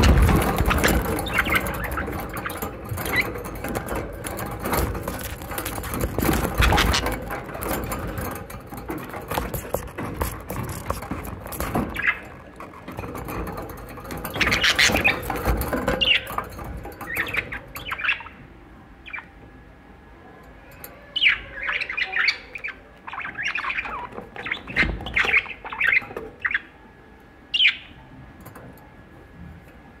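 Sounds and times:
budgerigars chattering and squawking: 0.0 - 8.5, 9.3 - 12.5, 14.1 - 18.4, 21.2 - 26.7, 27.5 - 28.0.

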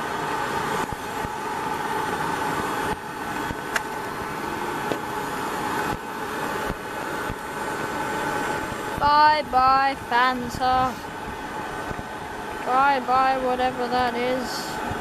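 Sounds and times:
propane torch roaring: 0.0 - 15.0.

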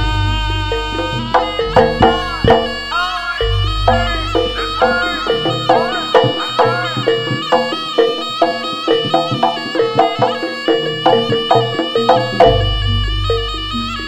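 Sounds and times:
instrumental background music: 0.0 - 14.0.

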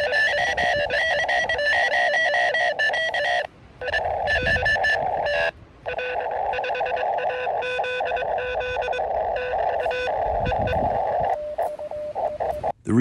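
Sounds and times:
morse code tone: 0.0 - 12.7
radio receiver hiss: 0.0 - 12.8.

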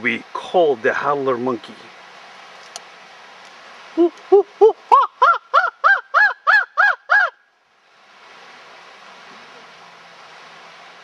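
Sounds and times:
chimpanzee-style hooting call: 4.0 - 7.4.

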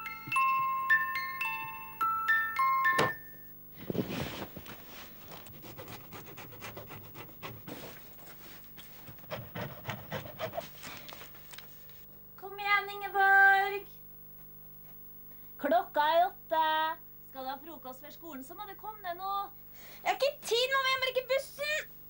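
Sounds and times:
cloth rustling: 3.8 - 5.6
woman calling out: 20.1 - 21.9.

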